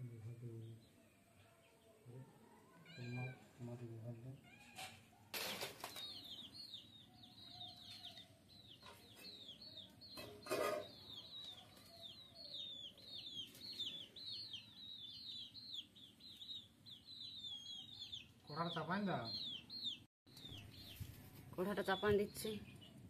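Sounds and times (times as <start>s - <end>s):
bird chirping: 0.0s - 23.0s.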